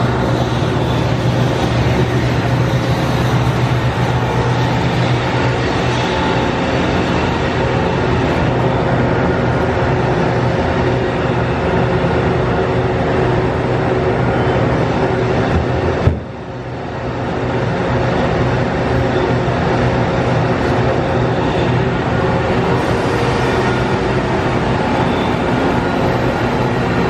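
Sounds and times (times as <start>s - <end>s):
machine whirring and humming: 0.0s - 27.0s.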